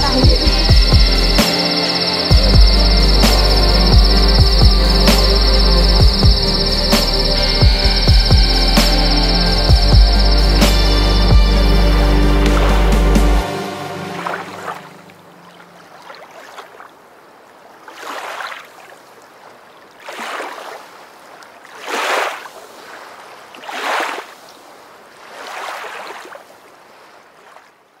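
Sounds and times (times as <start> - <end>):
low music notes: 0.0 - 15.3
sea waves washing in: 0.0 - 19.3, 20.0 - 27.7.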